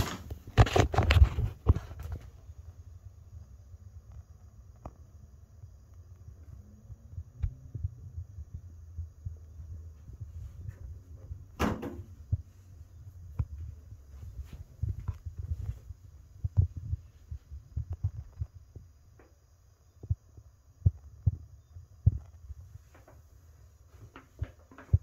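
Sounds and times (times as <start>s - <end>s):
rustling scrape: 0.0s - 2.3s.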